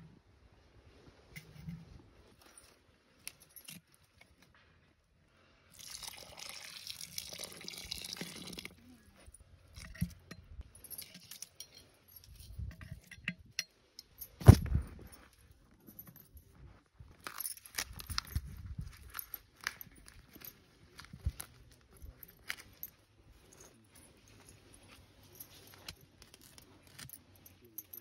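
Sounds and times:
ladle scraping and clinking: 9.6s - 14.6s.

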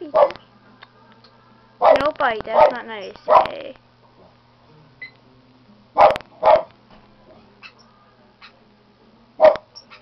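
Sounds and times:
dog barking: 0.1s - 0.4s, 1.8s - 3.6s, 6.0s - 6.7s, 9.4s - 10.0s.

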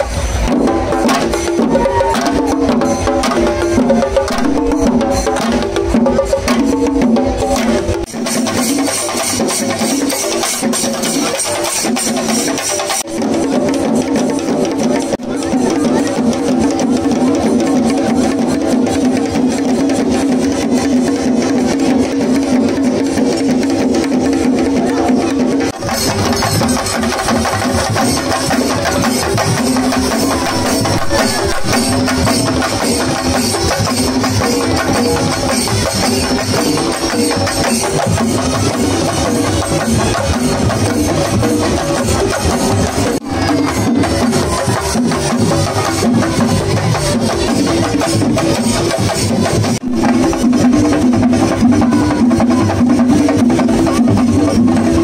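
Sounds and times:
loud music with driving drum beat: 25.5s - 55.0s.

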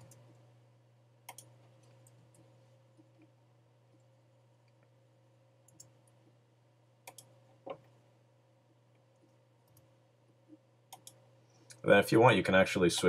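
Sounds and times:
faint low hum: 0.0s - 13.0s
computer clicks: 1.2s - 2.4s, 5.6s - 6.2s, 7.0s - 7.8s, 10.9s - 11.8s.

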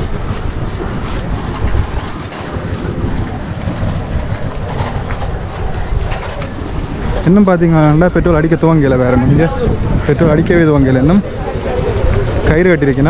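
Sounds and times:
road rumble: 0.0s - 13.0s
wind buffeting microphone: 0.0s - 13.0s.

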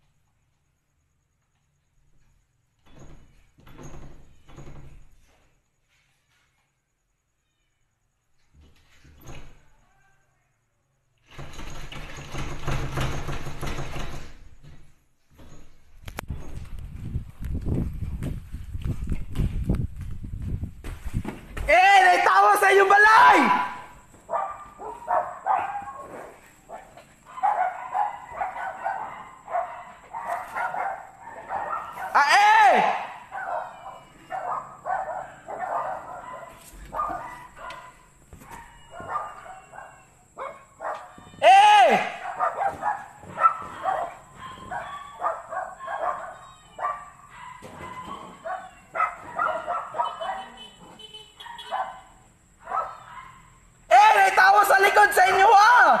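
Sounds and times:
dog barking: 24.3s - 32.2s, 33.0s - 41.2s, 42.1s - 53.6s
animal calling: 32.9s - 37.9s.

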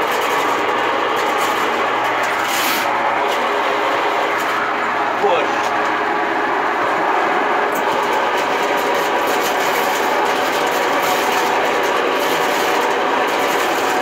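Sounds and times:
spinning cable rattle: 0.0s - 4.7s, 7.6s - 14.0s
motor hum: 0.0s - 14.0s.

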